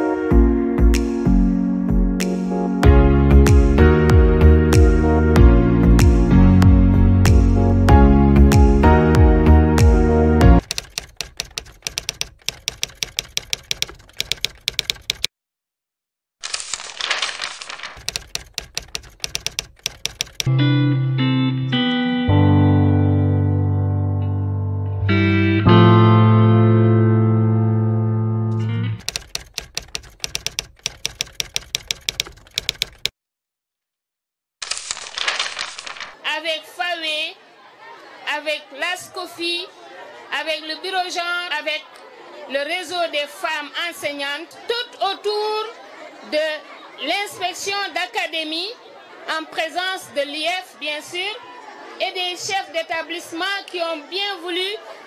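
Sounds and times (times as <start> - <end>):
typewriter key clicks: 10.6 - 15.3, 17.0 - 20.5, 29.0 - 33.1
paper tearing rustle: 16.4 - 18.1, 34.6 - 36.2.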